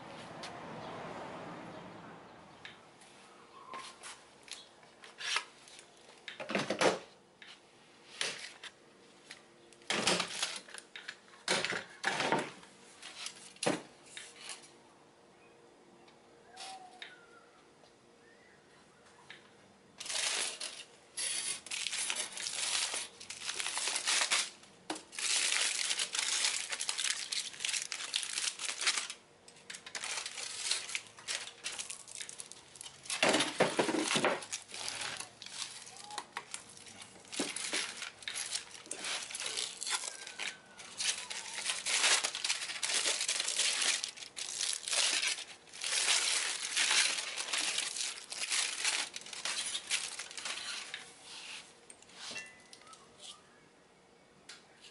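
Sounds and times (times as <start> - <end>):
aluminium foil crinkling and tearing: 9.9 - 11.2, 20.0 - 51.1.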